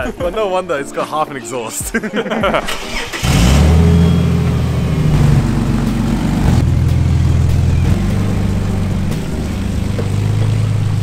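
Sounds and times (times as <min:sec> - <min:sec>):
car engine through leaking exhaust: 0:02.7 - 0:11.0.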